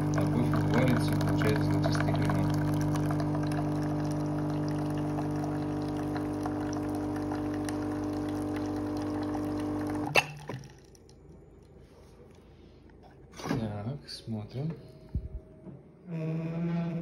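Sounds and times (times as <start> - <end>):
coffee machine pump hum: 0.0 - 11.0
coffee streaming into glass: 0.0 - 11.2
drips from spout: 0.0 - 11.3.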